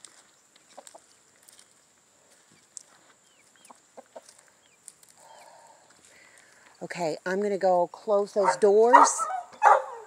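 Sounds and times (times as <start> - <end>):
chickens chirping softly: 0.0 - 6.8.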